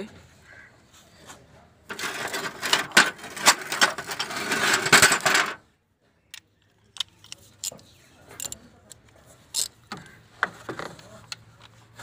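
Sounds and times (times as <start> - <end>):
wrench clicking and scraping: 6.9 - 8.6, 9.5 - 10.0.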